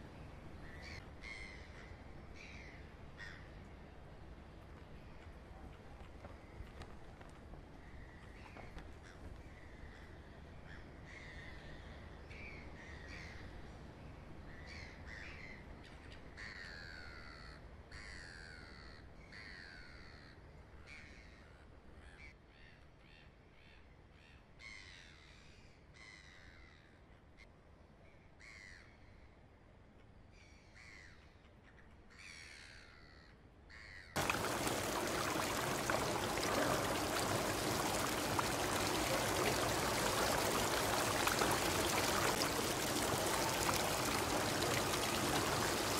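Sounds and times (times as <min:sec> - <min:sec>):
birds calling: 0:34.2 - 0:45.9
fountain running water: 0:34.2 - 0:45.9
soft outdoor ambience: 0:34.2 - 0:45.9.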